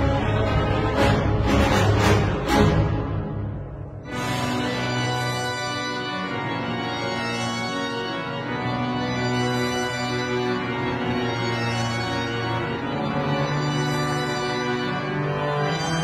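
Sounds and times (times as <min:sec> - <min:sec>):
organ-like held chords: 0:04.0 - 0:16.0.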